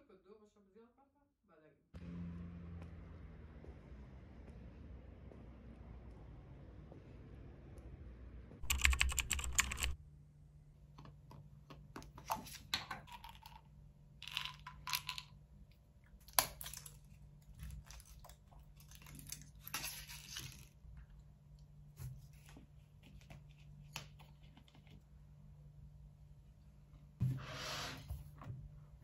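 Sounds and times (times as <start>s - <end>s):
plastic jar and pill pack handled: 11.1s - 15.4s, 16.2s - 21.0s.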